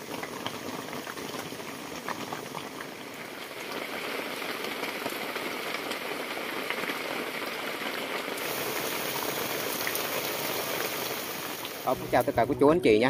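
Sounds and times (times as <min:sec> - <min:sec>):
water rushing: 0:08.4 - 0:12.5.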